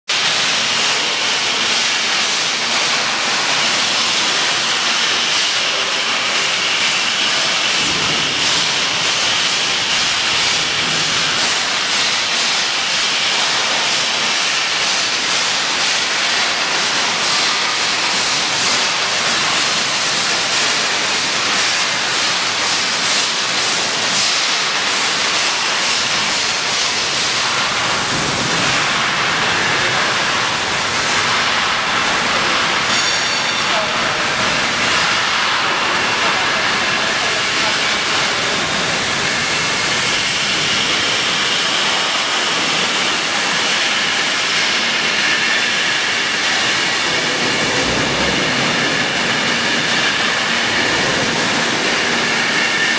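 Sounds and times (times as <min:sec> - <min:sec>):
welding torch hissing: 0:27.1 - 0:35.4.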